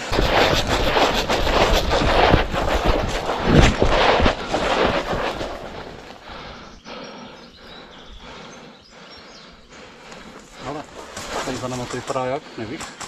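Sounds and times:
running footsteps through grass: 0:00.0 - 0:06.8.

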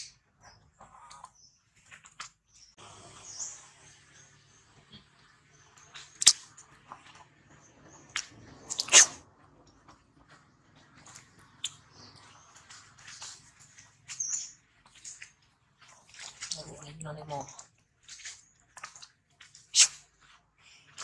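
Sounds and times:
bird chirps: 0:11.1 - 0:15.2.

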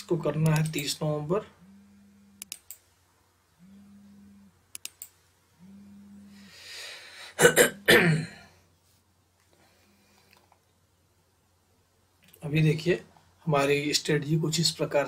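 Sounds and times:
low steady hums: 0:00.0 - 0:15.0
computer mouse clicks: 0:00.4 - 0:00.8, 0:02.4 - 0:02.8, 0:04.7 - 0:05.2
man drawing breath: 0:06.4 - 0:07.4
man coughing: 0:07.4 - 0:08.5.

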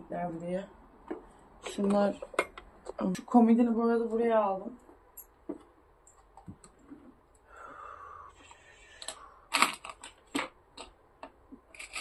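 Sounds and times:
small objects clicking and knocking: 0:09.0 - 0:12.0.

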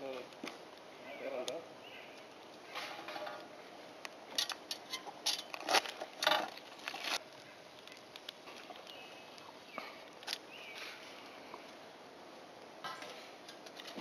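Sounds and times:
cable handling rustles and scrapes: 0:04.3 - 0:09.4.

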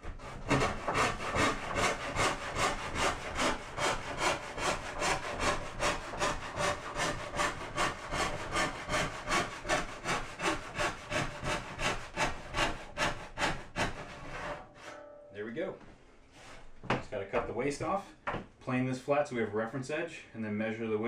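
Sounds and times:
hand saw cutting wood: 0:00.0 - 0:15.0.

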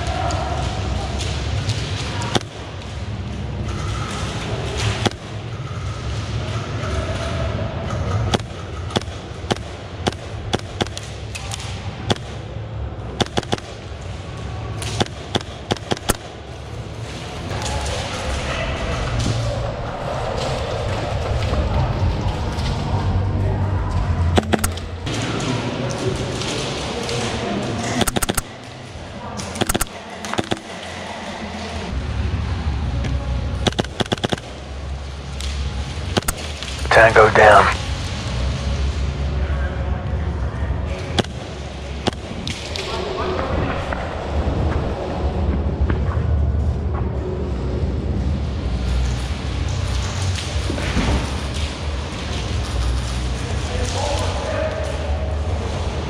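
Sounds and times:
steady low rumble: 0:08.1 - 0:25.1.

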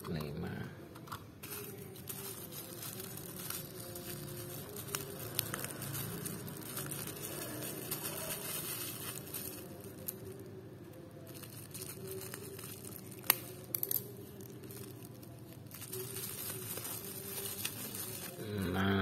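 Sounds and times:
bubble wrap crinkling: 0:01.4 - 0:18.8
scissors cutting plastic: 0:11.2 - 0:18.4
bubble wrap snap: 0:11.3 - 0:18.4.

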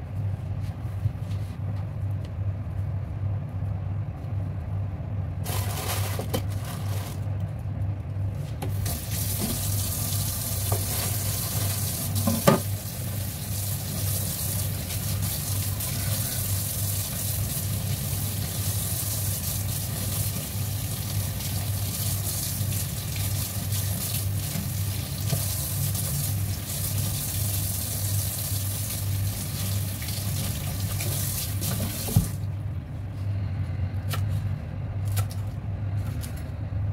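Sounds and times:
tap running into steel sink: 0:12.2 - 0:12.7
low hum: 0:32.3 - 0:36.9.

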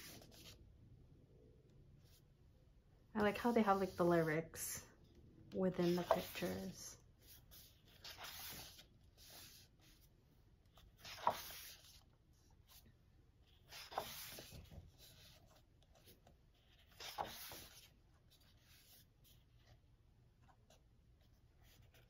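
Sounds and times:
paper pages turning: 0:00.0 - 0:00.6, 0:03.2 - 0:04.3, 0:05.8 - 0:12.8, 0:13.4 - 0:19.8.

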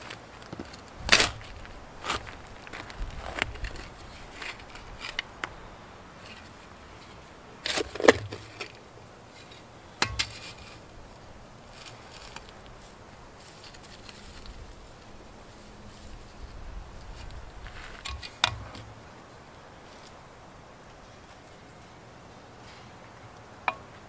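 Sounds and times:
spade digging into soil: 0:07.6 - 0:08.8, 0:09.4 - 0:10.8, 0:18.0 - 0:19.0.

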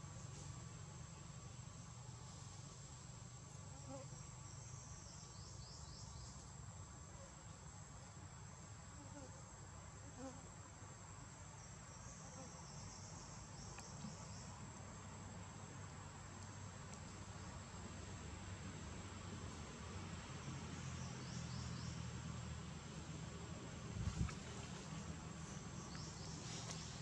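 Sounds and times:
low background hiss: 0:00.0 - 0:27.0
insects trilling: 0:24.2 - 0:27.0.

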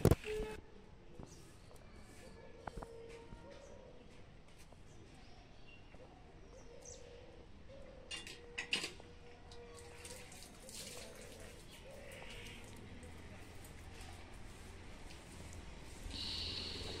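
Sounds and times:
faint bird chirps: 0:16.1 - 0:17.0.

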